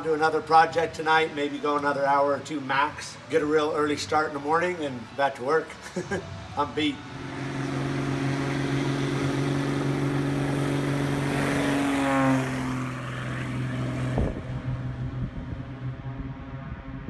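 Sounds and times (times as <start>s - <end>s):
propeller plane passing by: 0.0s - 17.0s.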